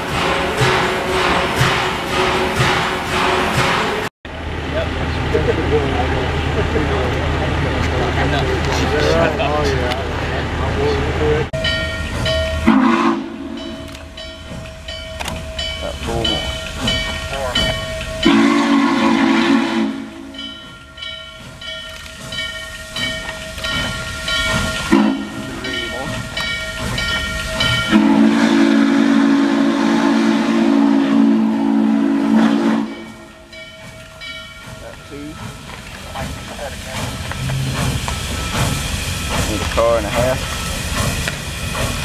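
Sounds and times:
steam hiss: 0.0s - 4.1s, 34.6s - 42.0s
bell ringing: 11.6s - 12.7s, 20.3s - 28.0s
steam whistle blasts: 12.6s - 13.8s, 18.2s - 20.4s, 24.9s - 25.5s, 27.8s - 33.5s.

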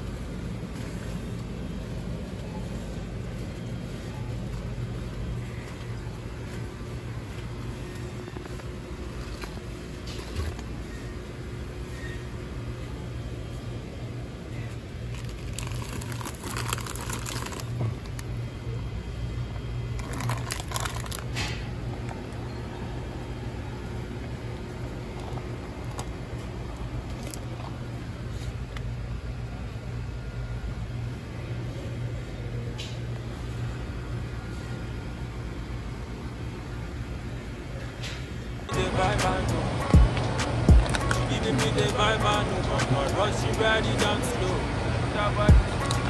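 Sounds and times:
steady low hum: 0.0s - 46.0s
rustling and crinkling: 2.2s - 11.0s, 15.0s - 18.3s, 19.9s - 22.2s, 25.0s - 28.6s.

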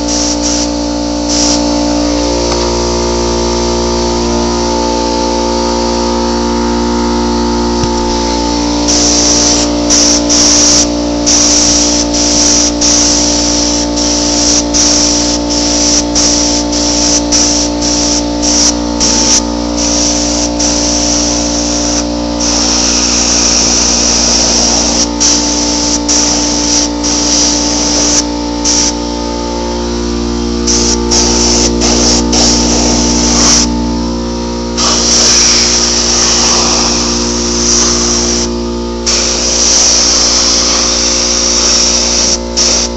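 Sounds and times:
hiss of paint spraying: 0.0s - 1.7s, 8.8s - 29.0s, 30.7s - 33.7s, 34.8s - 38.5s, 39.1s - 42.9s
spray gun motor whine: 0.0s - 42.9s.

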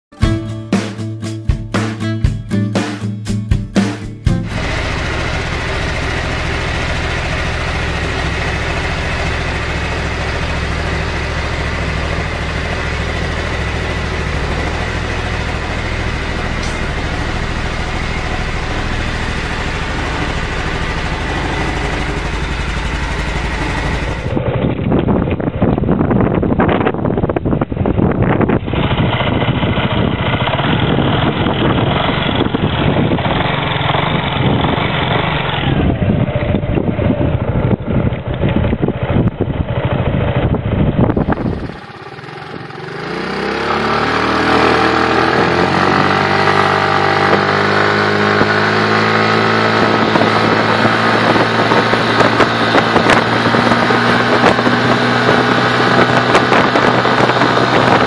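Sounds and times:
scooter engine running: 4.3s - 58.0s
wind noise on microphone: 12.4s - 58.0s.

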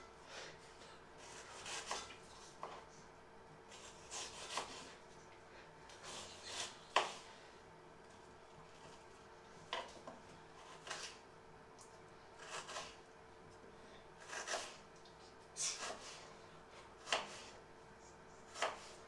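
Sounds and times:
knife slicing onion on board: 1.2s - 2.8s, 3.7s - 5.0s, 5.9s - 7.3s, 10.6s - 11.2s, 12.4s - 13.0s, 14.2s - 14.9s, 15.6s - 17.6s, 18.5s - 19.0s.

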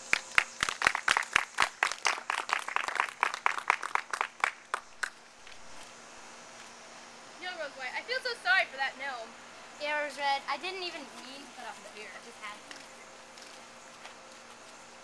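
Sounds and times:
audience clapping: 0.0s - 5.2s.

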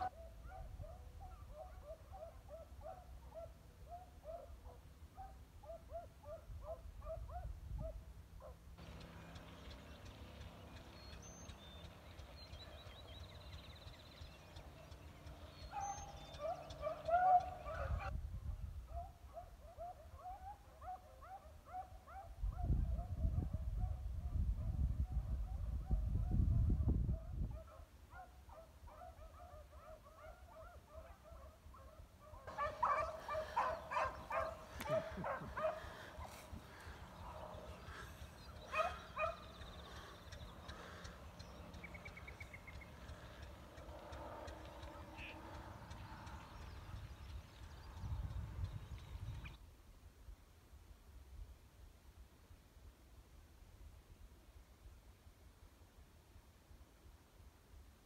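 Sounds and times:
hounds baying: 15.3s - 18.1s, 27.5s - 46.5s.

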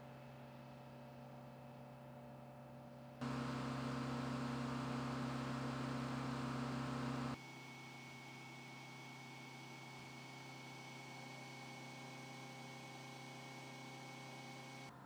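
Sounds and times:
thin high whine: 3.2s - 7.4s
mechanical hum: 3.2s - 15.0s.

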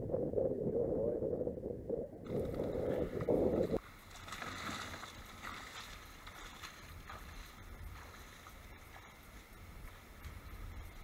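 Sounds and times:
wind buffeting microphone: 0.0s - 3.8s
long grass rustling: 2.2s - 11.0s.

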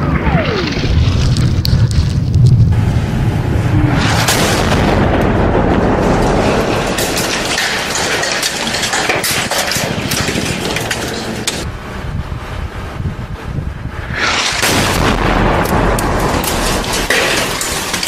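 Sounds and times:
heavy low boom: 0.0s - 7.3s, 13.9s - 17.1s
crackling with sharp cracks: 0.0s - 11.7s, 14.1s - 18.0s
dense rumbling noise: 0.0s - 18.0s.

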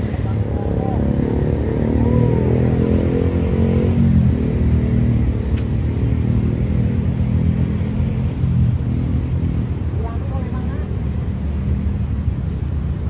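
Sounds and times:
vehicle engine humming: 0.0s - 13.0s
sharp click: 5.5s - 5.8s.

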